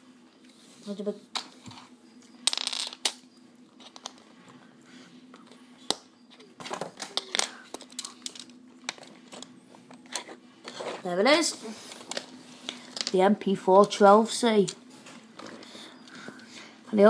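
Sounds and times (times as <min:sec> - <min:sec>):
faint steady hum: 0:00.0 - 0:17.0
plastic pieces clicking and rattling: 0:07.0 - 0:09.5.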